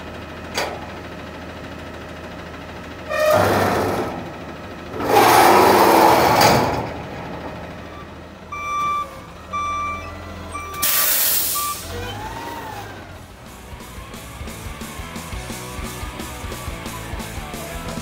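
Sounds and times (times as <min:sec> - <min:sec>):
truck engine idling: 0:00.0 - 0:18.0
backup alarm beeping: 0:07.8 - 0:12.2
air brake hiss: 0:10.8 - 0:12.0.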